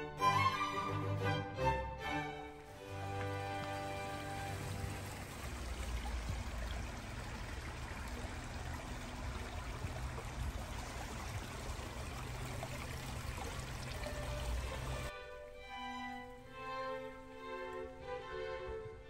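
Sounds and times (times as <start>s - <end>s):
violin music: 0.0s - 6.7s, 12.7s - 19.0s
creek trickling over rocks: 2.5s - 18.1s.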